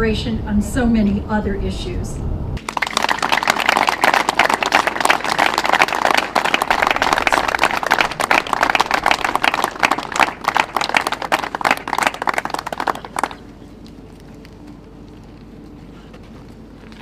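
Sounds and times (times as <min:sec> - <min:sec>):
audience applauding: 0:02.6 - 0:13.6.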